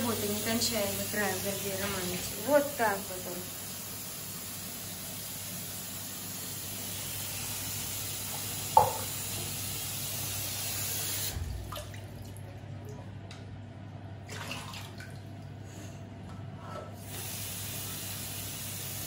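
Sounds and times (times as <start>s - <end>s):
tap running into sink: 8.3s - 9.6s.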